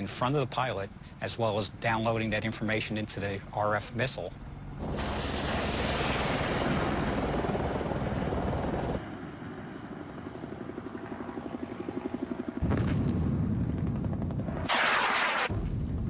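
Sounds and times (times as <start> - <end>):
helicopter rotor beat: 0.0 - 14.7
rocket motor rushing: 4.8 - 7.4.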